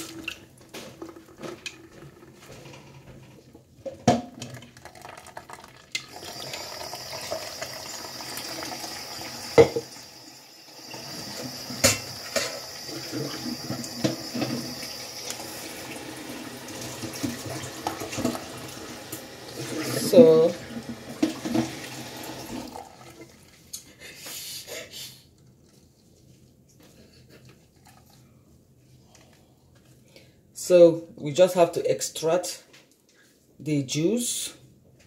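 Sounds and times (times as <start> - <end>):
juice trickling through a sieve: 0.0 - 23.8
cup knocking against glass: 9.6 - 9.9.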